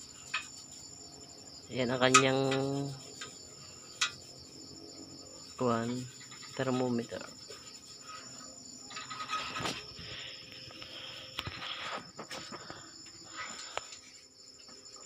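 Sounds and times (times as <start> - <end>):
night insects trilling: 0.0 - 15.0
clicks and rustles: 8.3 - 14.8.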